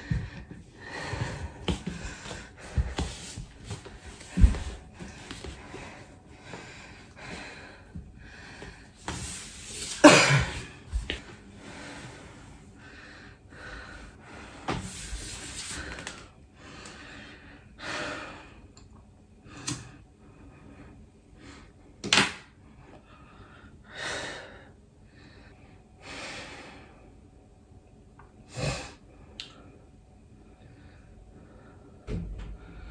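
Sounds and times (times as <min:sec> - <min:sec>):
man breathing hard and gasping: 0:00.0 - 0:09.0.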